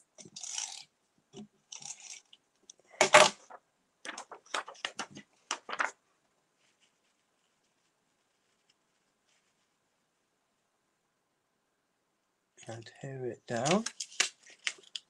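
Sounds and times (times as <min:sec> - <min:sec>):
paper rustling and scraping: 0:03.0 - 0:06.0.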